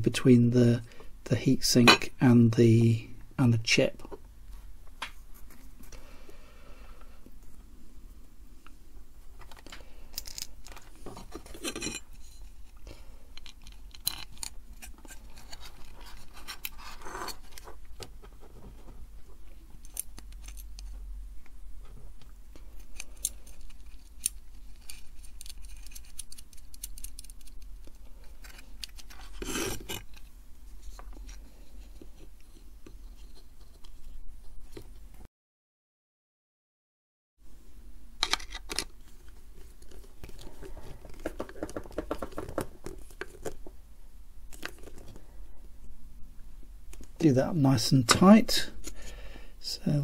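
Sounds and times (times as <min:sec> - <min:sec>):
low steady hum: 0:00.0 - 0:35.3, 0:37.4 - 0:50.0
metal parts clicking and tapping: 0:13.4 - 0:14.5, 0:22.9 - 0:27.6.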